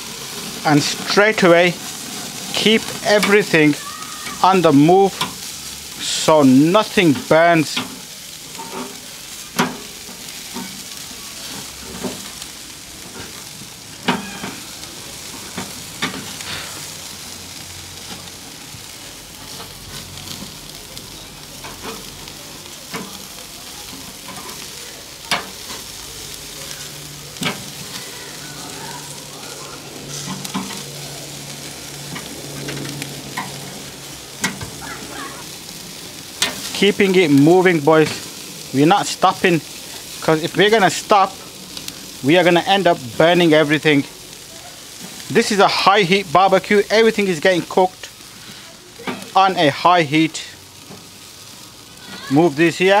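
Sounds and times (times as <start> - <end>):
chicken sizzling on a grill: 0.0 - 53.0.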